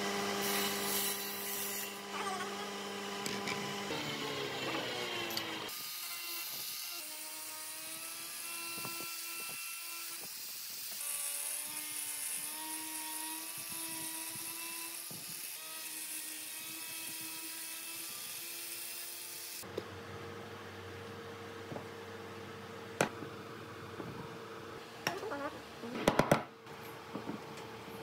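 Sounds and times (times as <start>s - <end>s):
angle grinder sanding wood: 0.0s - 19.7s.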